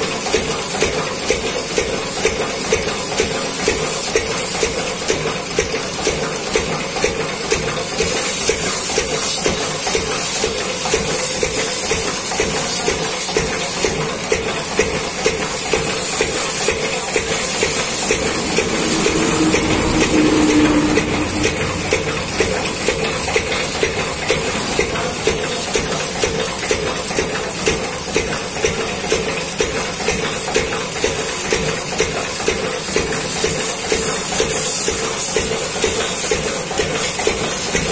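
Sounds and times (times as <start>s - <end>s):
water jet hissing on metal: 0.0s - 31.8s
steady hum: 17.0s - 27.0s.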